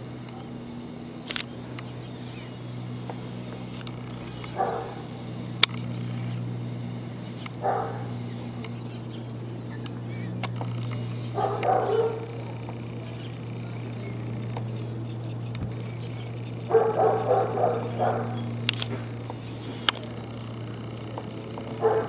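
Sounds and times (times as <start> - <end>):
steady low hum: 0.0 - 22.0
sharp click: 1.2 - 2.0, 5.6 - 6.4, 18.6 - 20.1
dog barking: 4.6 - 5.0, 7.6 - 8.1, 11.4 - 12.4, 16.7 - 18.4, 21.8 - 22.0.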